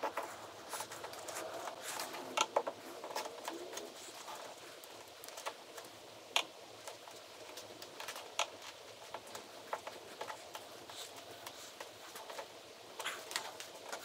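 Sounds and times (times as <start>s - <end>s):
small clicks and taps: 4.8s - 14.0s.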